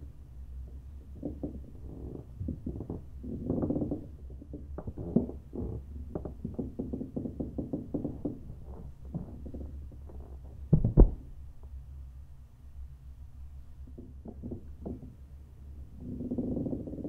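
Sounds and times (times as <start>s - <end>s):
steady low hum: 0.0s - 17.0s
soft knocks and creaks: 0.7s - 11.4s, 13.9s - 15.2s
loud double thump: 10.7s - 11.3s.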